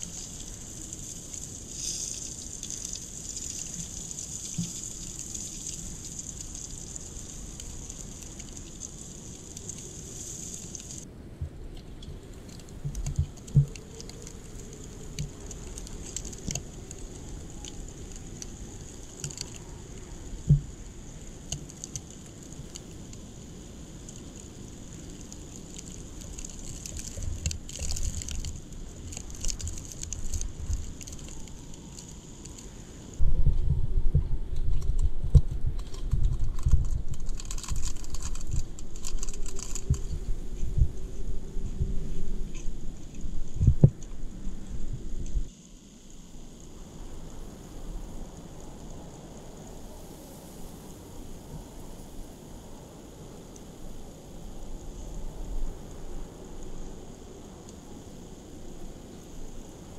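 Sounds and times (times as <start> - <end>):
campfire crackling and popping: 0.0 - 11.0, 11.9 - 33.2, 34.6 - 50.2
snow pattering on a shelter: 0.0 - 11.1, 11.8 - 59.9
wind thumps on microphone: 33.2 - 37.4, 39.8 - 45.5.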